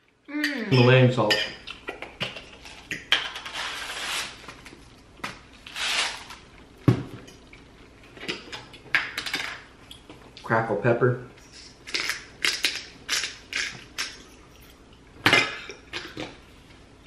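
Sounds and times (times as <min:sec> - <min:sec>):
cutlery clinking on plates: 0:00.7 - 0:03.5, 0:12.0 - 0:16.4.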